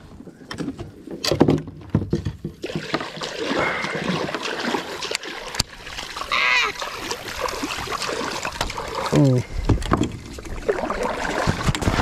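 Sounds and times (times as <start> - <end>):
water splashing: 2.2 - 12.0.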